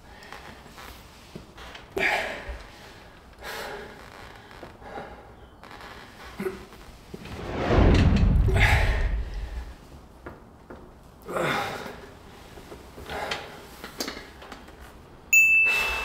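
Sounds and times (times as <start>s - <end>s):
loud rushing whoosh: 7.2s - 10.0s.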